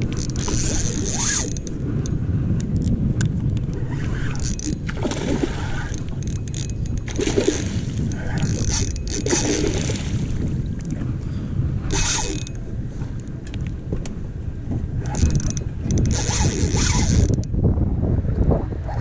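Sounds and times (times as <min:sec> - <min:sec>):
water sloshing and splashing: 0:00.0 - 0:11.2
wind buffeting microphone: 0:00.0 - 0:19.0.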